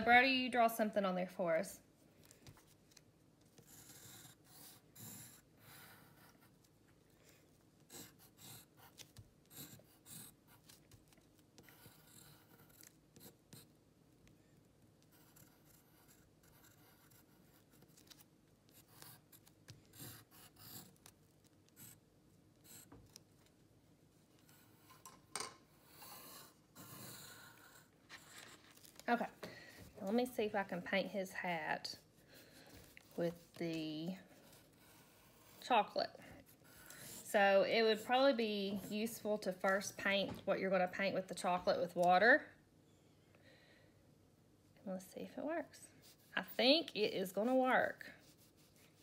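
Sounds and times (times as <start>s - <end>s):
pencil scratching on paper: 3.4s - 13.8s, 15.0s - 22.0s, 22.6s - 23.2s, 24.4s - 25.0s, 25.7s - 28.8s, 30.0s - 39.8s, 45.9s - 49.0s.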